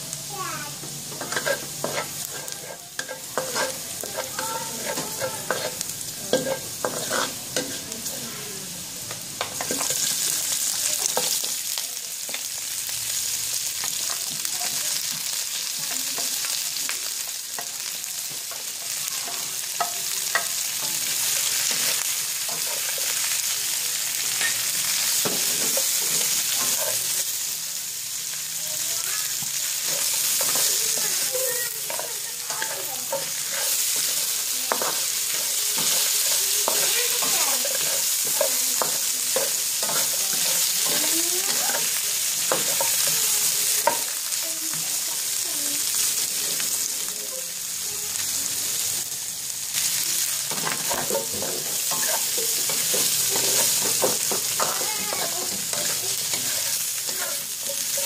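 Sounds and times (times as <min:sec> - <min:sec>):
garlic sizzling in hot oil: 0:00.0 - 0:58.0
wooden spatula scraping wok: 0:01.0 - 0:08.1, 0:29.4 - 0:44.0, 0:50.5 - 0:58.0.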